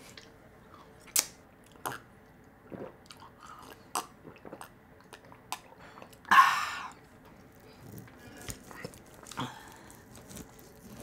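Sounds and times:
chewing food: 7.2s - 11.0s.

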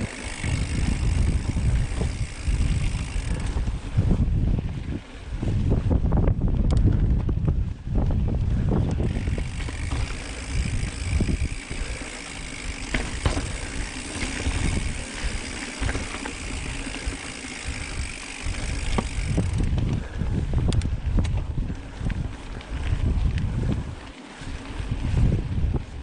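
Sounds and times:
steady high buzz: 0.0s - 4.0s
bike tyre noise and rattles: 0.0s - 26.0s
wind rumble on microphone: 0.0s - 26.0s.

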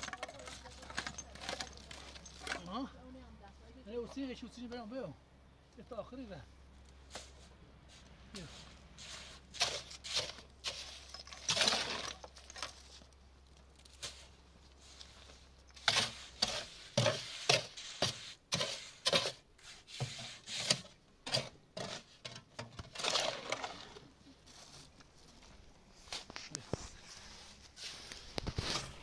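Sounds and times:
hand tools knocking and scraping: 0.0s - 2.7s, 15.8s - 23.8s.

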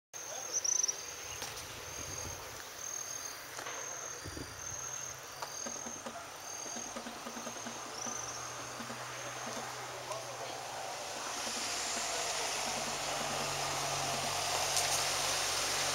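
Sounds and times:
insects chirping: 0.2s - 15.9s.

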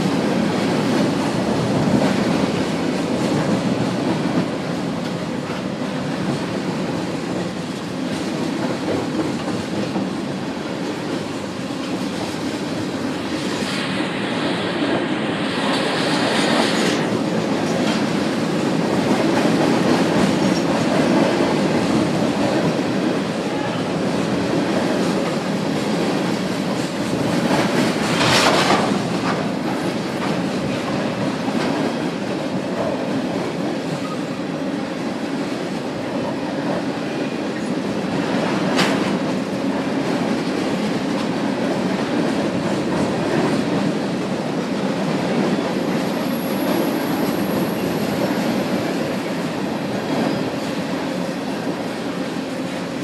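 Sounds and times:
freight train rolling over bridge: 0.0s - 53.0s
wheels clacking on rail joints: 15.7s - 34.3s.

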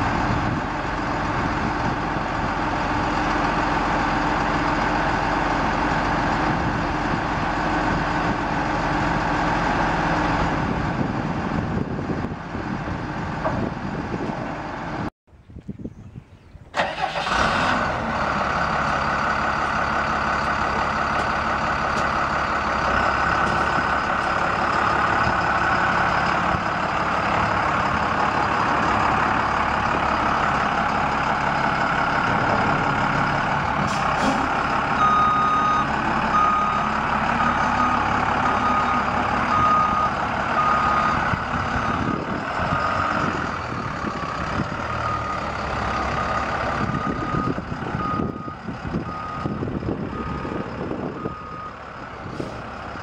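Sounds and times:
diesel truck engine running: 0.0s - 15.1s, 16.7s - 53.0s
engine revving: 16.8s - 48.2s.

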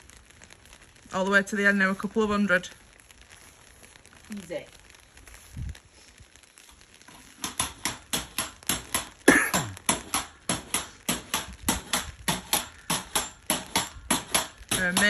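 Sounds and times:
pogo stick bouncing on paving: 7.3s - 15.0s.

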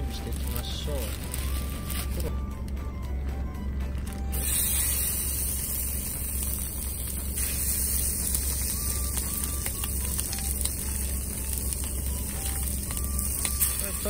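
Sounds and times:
meat sizzling in frying pan: 4.3s - 14.0s.

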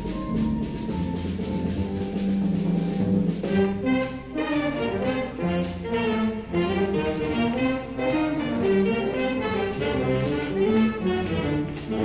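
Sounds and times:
jazz band playing: 0.0s - 12.0s
steady drum beat: 0.0s - 12.0s
brass horns playing tune: 3.4s - 12.0s.

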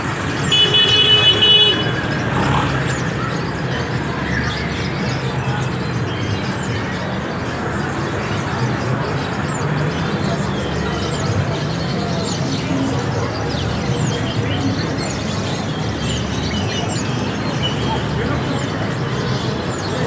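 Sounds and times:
market noise: 0.0s - 20.0s
street traffic: 0.0s - 20.0s
vehicle horn: 0.4s - 2.2s.

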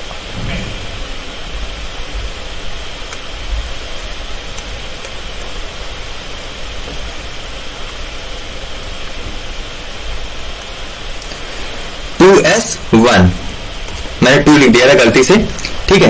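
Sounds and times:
low rumble: 0.0s - 6.7s
steady background hiss: 0.0s - 16.0s.

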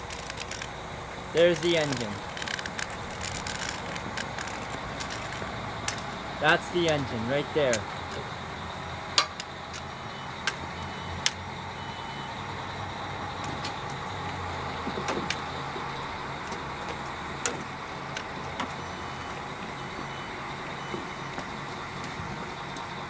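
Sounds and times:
sharp clicks: 0.0s - 0.8s, 1.4s - 6.2s
diesel railcar engine idling: 0.0s - 23.0s.

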